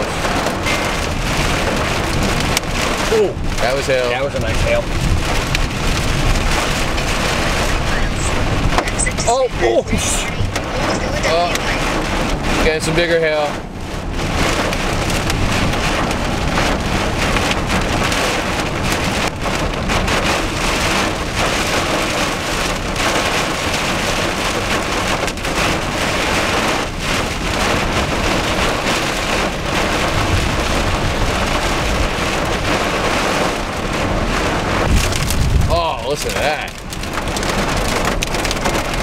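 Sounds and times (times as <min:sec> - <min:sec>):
hail and rain on car roof: 0:00.0 - 0:39.0
low road rumble: 0:00.0 - 0:39.0.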